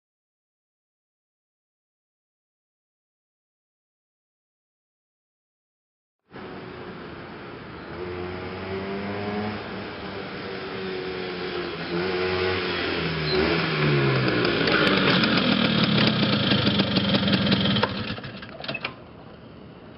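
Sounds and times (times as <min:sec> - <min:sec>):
scooter engine passing by: 0:06.4 - 0:18.5.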